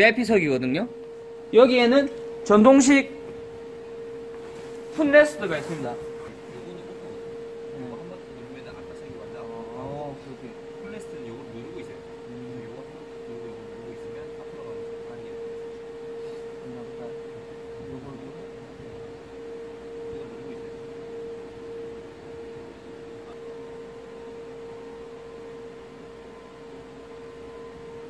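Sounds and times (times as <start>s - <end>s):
seat motor electric whine: 0.0s - 28.0s.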